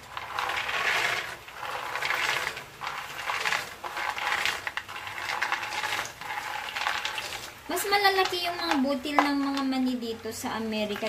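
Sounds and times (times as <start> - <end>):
peanuts clattering into hot oil: 0.0 - 11.0.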